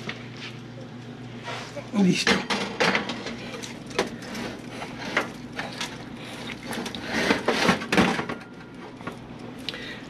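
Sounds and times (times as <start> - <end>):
oven handling clicks and knocks: 2.2 - 4.3.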